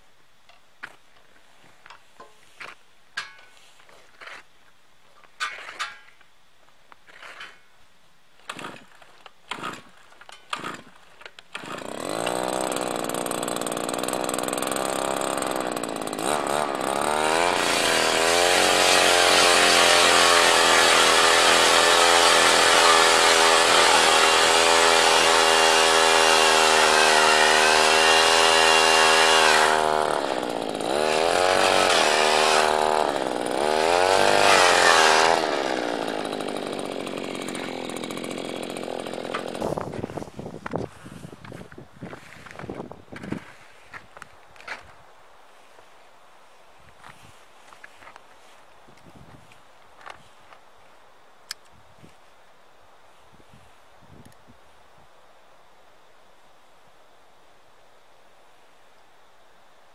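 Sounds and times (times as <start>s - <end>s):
pull-cord tugs: 8.4s - 43.5s
ice auger engine running: 10.5s - 41.2s.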